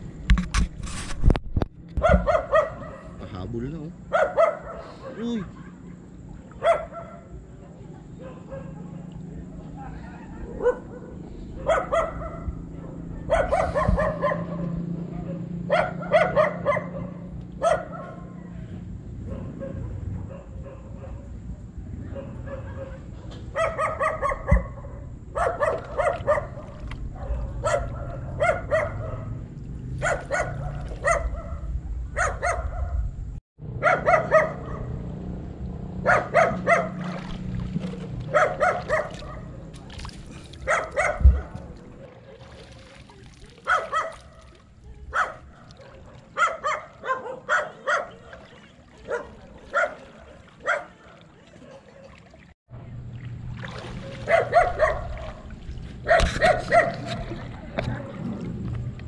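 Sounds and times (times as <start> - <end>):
dog barking: 2.0 - 3.2, 4.1 - 7.4, 8.2 - 9.0, 10.2 - 18.4, 19.2 - 21.3, 22.0 - 29.4, 30.0 - 33.0, 33.8 - 35.0, 36.0 - 37.1, 37.9 - 39.7, 40.6 - 42.5, 43.6 - 52.2, 54.0 - 57.4
dull thump: 41.0 - 41.8.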